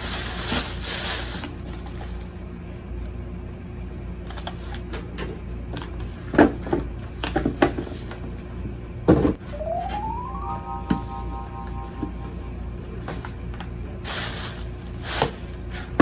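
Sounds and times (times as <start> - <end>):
plastic packaging crinkling: 0.0 - 2.4, 14.1 - 15.6
steady low hum: 9.4 - 15.0.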